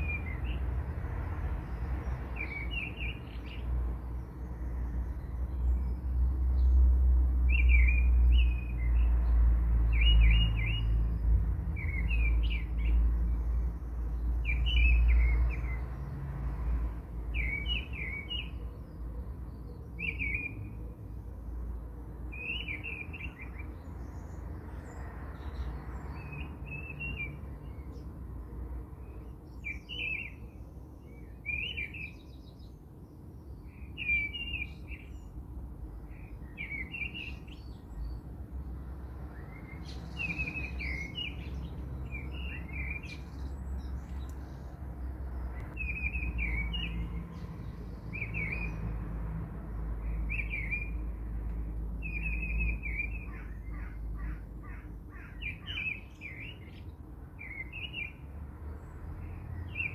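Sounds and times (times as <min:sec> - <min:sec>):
small bird chirping: 0:39.3 - 0:44.7.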